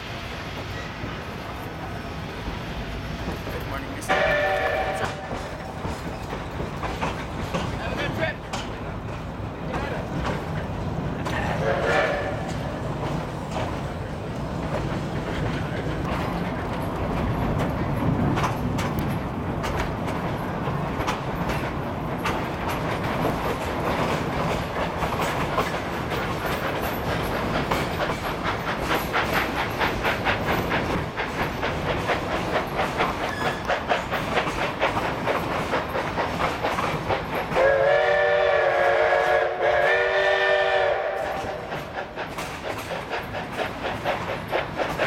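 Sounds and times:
steam locomotive exhaust beats: 0.0 - 45.0
wheels clicking over rail joints: 3.2 - 38.0, 41.1 - 45.0
steam whistle blasts: 4.1 - 5.3, 11.6 - 12.6, 37.6 - 41.7.

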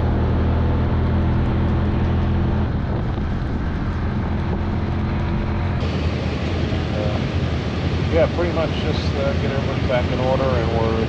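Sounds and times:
utility vehicle engine running: 0.0 - 11.0.

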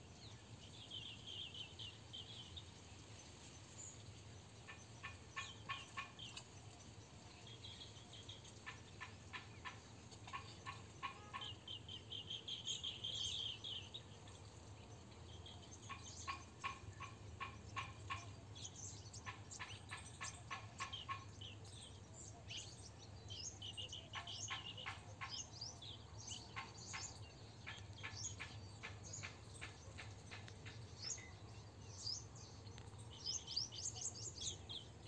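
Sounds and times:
small birds chirping: 0.0 - 35.0.

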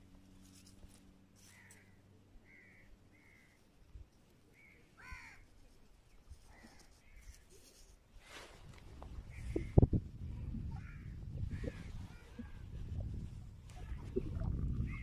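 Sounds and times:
faint short bird calls: 1.4 - 3.6, 4.5 - 5.5.

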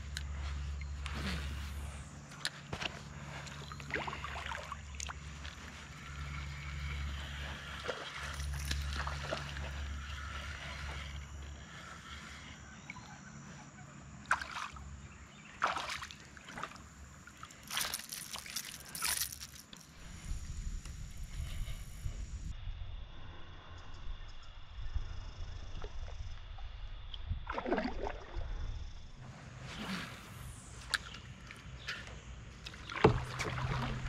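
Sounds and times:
water lapping at a kayak: 0.0 - 19.8, 27.3 - 34.0
fishing reel cranking: 17.6 - 20.0.

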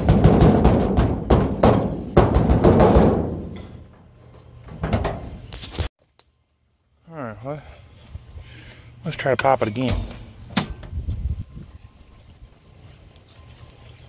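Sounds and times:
hand banging on sheet-metal hood: 0.0 - 3.6.

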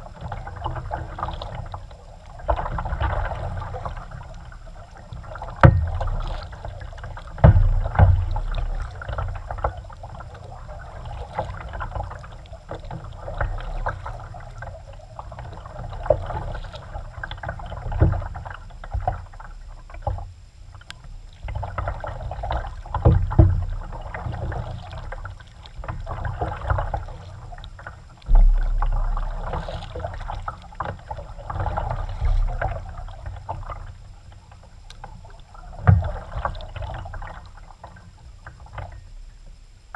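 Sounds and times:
paddle strokes splashing water: 0.0 - 39.9
low thumps: 28.2 - 30.4.

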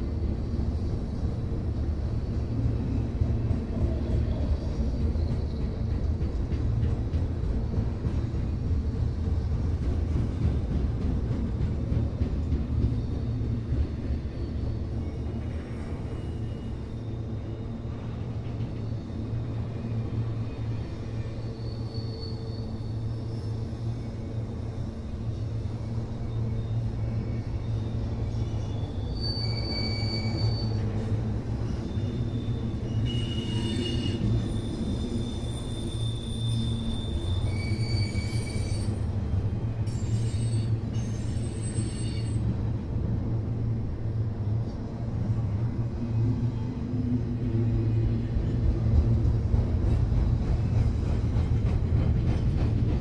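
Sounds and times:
train wheels rumbling on rails: 0.0 - 53.0
high-pitched metallic squeals: 26.2 - 39.2, 39.8 - 42.5.

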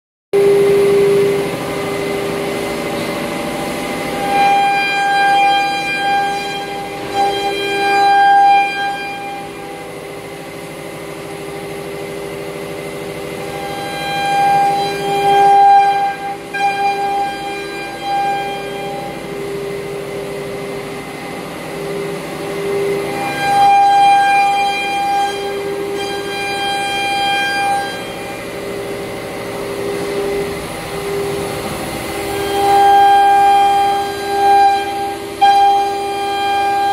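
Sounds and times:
higher-pitched cutting whine: 0.4 - 36.9
wood router spindle whine: 0.4 - 36.9.

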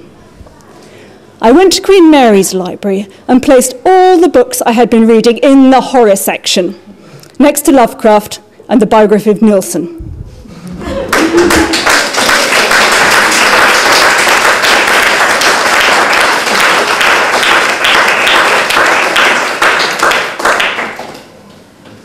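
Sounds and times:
audience clapping: 11.0 - 21.3.

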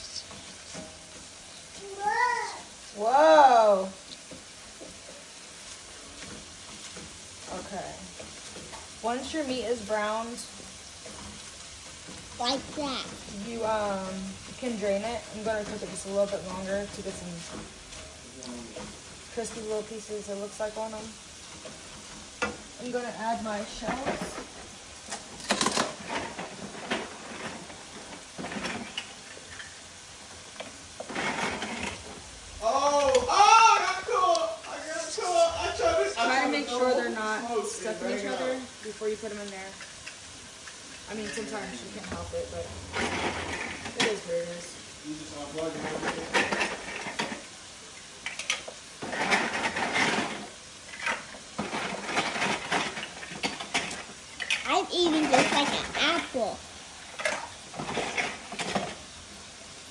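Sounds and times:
pasta clattering into a pot: 23.7 - 29.9, 45.4 - 47.6, 48.2 - 55.6.

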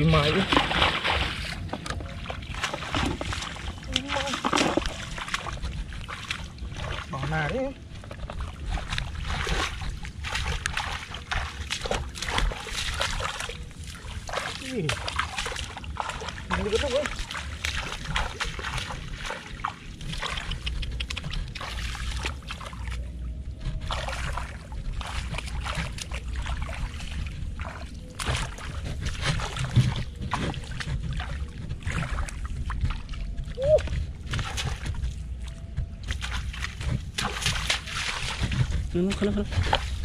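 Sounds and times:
splashing through shallow water: 0.0 - 40.0.

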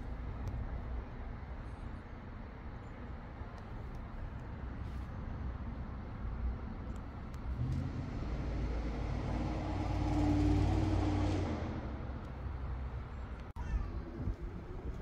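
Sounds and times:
vehicle driving past: 7.5 - 12.3.

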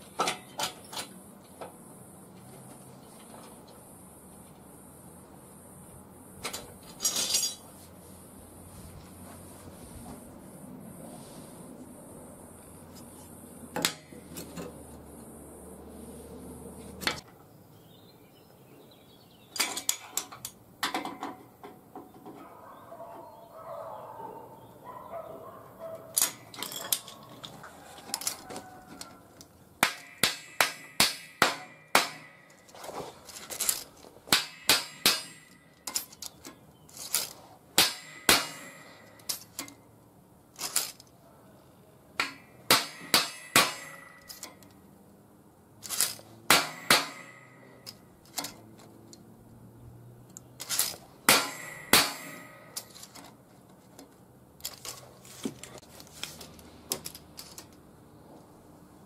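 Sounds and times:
hammer striking steel plate: 29.8 - 32.5, 34.3 - 35.7, 37.8 - 39.2, 42.2 - 44.5, 46.5 - 47.8, 51.3 - 52.9.

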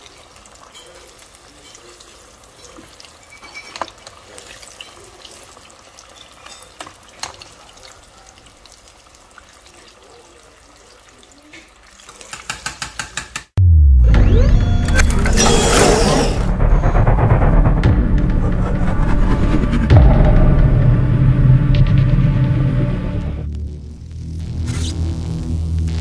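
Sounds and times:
deep-frying sizzle with crackles: 0.0 - 13.0.

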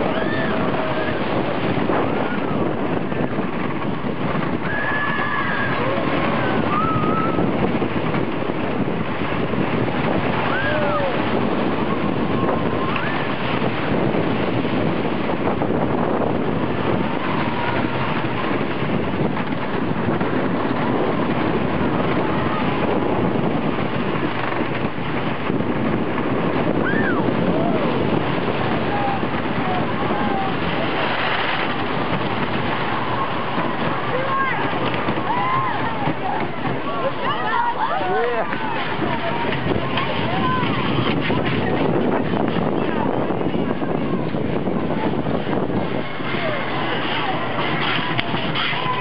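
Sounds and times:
riders shouting: 0.0 - 2.5, 4.6 - 7.5, 10.3 - 13.6, 26.7 - 41.6
roller coaster train rumbling: 0.0 - 49.0
wind rushing over microphone: 0.0 - 49.0.

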